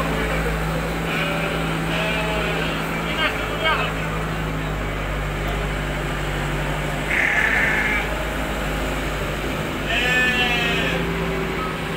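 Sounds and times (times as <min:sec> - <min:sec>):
sheep bleating: 0:01.0 - 0:03.6, 0:07.1 - 0:08.2, 0:09.8 - 0:11.1.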